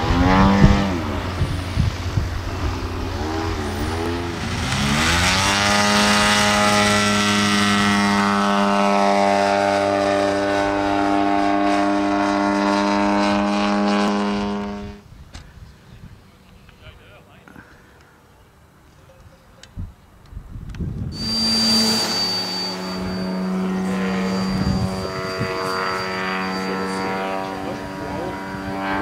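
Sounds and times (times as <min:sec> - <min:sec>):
model plane engine: 0:00.0 - 0:15.0, 0:21.2 - 0:29.0.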